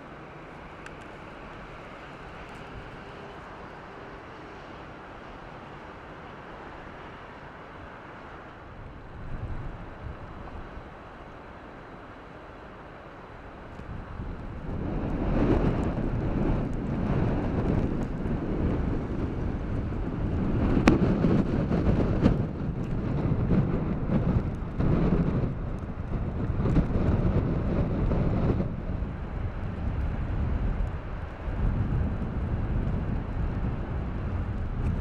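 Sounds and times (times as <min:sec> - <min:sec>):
wind buffeting microphone: 0:08.6 - 0:11.9, 0:13.3 - 0:35.0.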